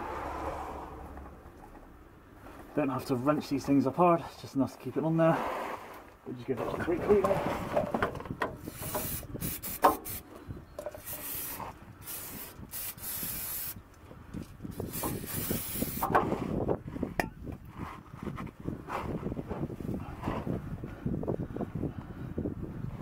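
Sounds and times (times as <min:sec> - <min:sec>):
aerosol spray hissing: 0:08.7 - 0:10.2, 0:11.0 - 0:13.8, 0:14.8 - 0:16.1.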